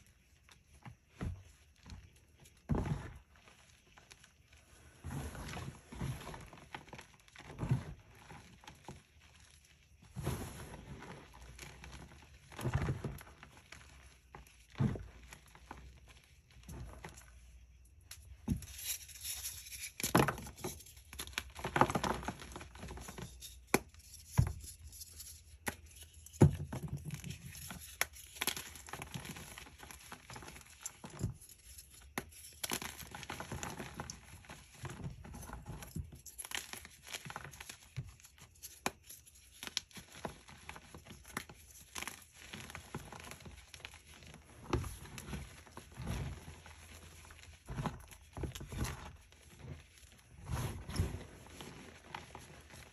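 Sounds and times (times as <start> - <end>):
chalk crunching and crumbling: 27.0 - 52.9.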